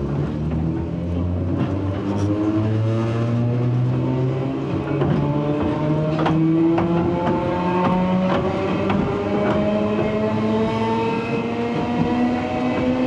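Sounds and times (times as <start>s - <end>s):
sharp knocks: 4.7s - 10.4s.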